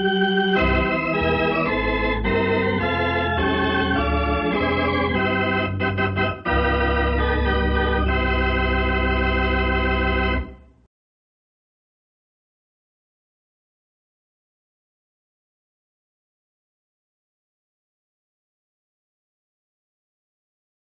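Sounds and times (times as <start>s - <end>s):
organ playing sustained chords: 0.0s - 10.7s.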